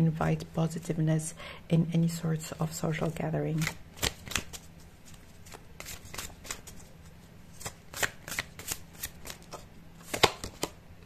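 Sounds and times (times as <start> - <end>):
cards shuffling and snapping: 3.5 - 6.9, 7.5 - 10.8.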